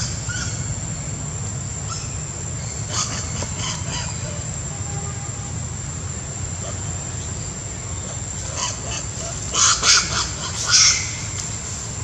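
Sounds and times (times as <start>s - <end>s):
monkeys screaming: 1.9s - 5.6s, 8.0s - 11.4s.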